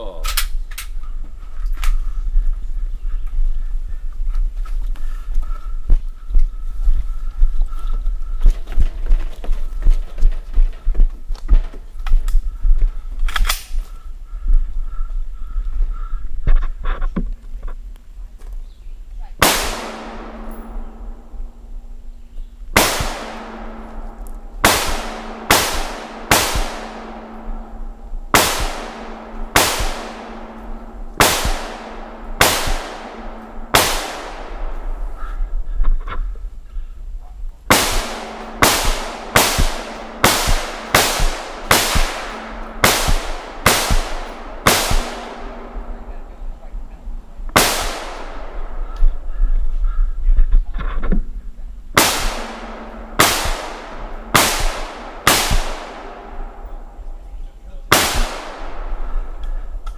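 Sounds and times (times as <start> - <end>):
rifle shots echoing: 19.4 - 36.0, 37.7 - 50.1, 52.0 - 59.9.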